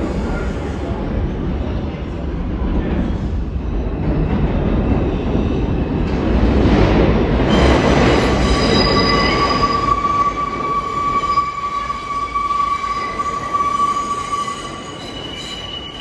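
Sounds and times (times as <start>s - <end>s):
subway train rumbling: 0.0s - 16.0s
high metallic squeal: 7.5s - 16.0s.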